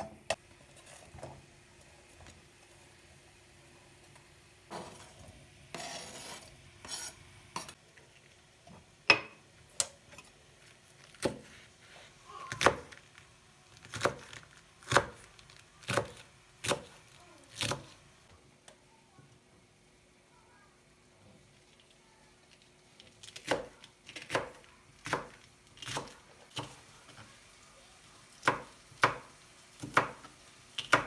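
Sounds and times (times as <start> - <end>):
onions pushed into frying pan: 4.7 - 7.8.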